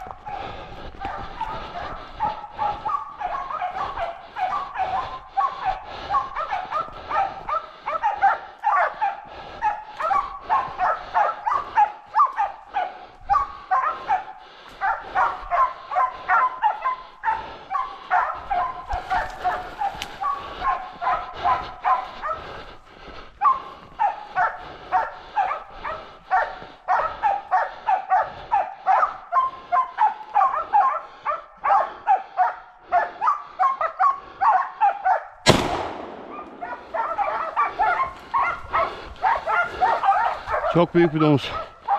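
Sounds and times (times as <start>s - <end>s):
dogs barking: 0.0s - 41.9s
shotgun shot: 35.5s - 36.9s.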